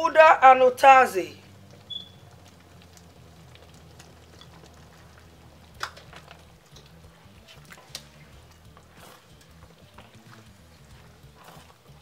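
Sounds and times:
thick soup bubbling in a pot: 1.3s - 12.0s.

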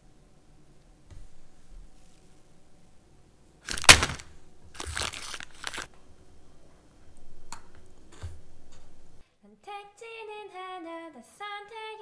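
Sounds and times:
plastic wrapper crinkling: 3.7s - 5.9s.

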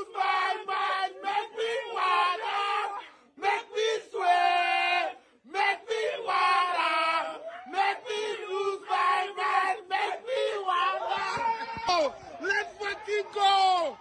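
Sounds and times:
men shouting and chanting: 0.0s - 14.0s.

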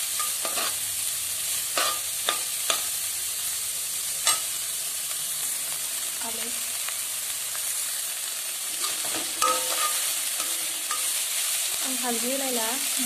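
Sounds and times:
vegetables sizzling in a wok: 0.0s - 13.0s
spoon clinking against wok: 0.1s - 0.8s, 1.8s - 3.0s, 8.8s - 11.2s
metal spoon scraping: 0.2s - 0.8s, 8.7s - 11.3s.

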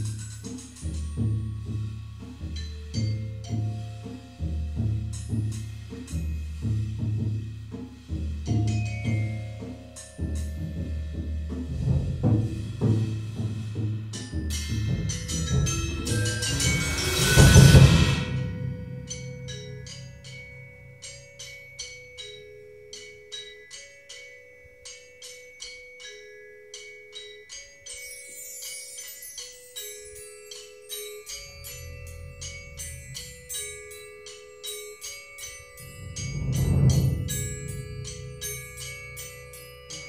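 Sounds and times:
vibraphone and glockenspiel figure: 0.0s - 40.0s
wind chime sweep: 0.0s - 40.0s
bass drum roll: 35.8s - 39.4s
thunder tube rumble: 35.8s - 39.4s.

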